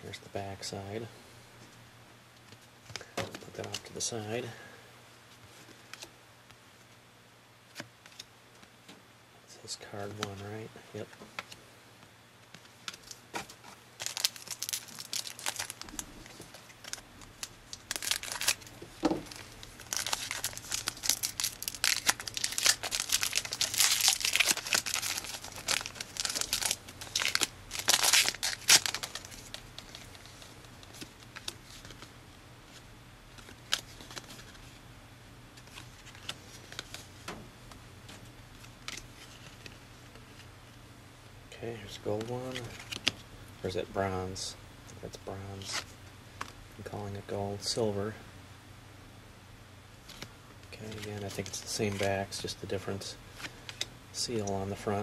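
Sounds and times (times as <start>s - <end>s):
wrapper tearing and crinkling: 13.0s - 32.1s.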